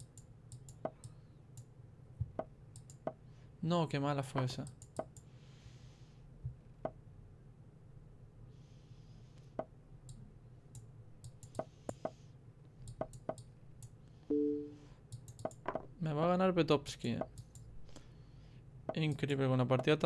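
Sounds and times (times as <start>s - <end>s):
computer mouse clicking: 0.0s - 1.7s, 2.7s - 3.2s, 10.0s - 12.2s, 12.8s - 14.0s, 15.1s - 15.7s, 17.2s - 17.7s
electronic two-tone beep: 14.3s - 14.8s.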